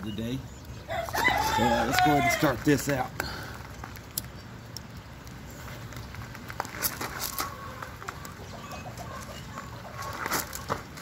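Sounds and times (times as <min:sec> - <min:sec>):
fuse sputtering and crackling: 0:02.5 - 0:11.0.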